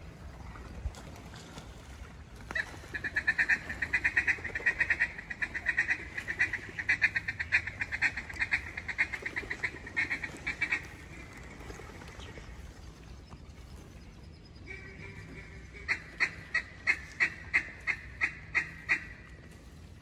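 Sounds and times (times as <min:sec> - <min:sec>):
duck call chatter: 0:02.6 - 0:10.8.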